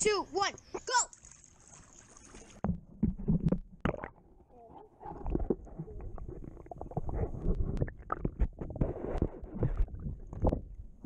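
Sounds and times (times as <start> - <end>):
small underwater clicks and knocks: 2.3 - 4.1, 4.7 - 11.0
muffled underwater churning water: 4.9 - 11.0.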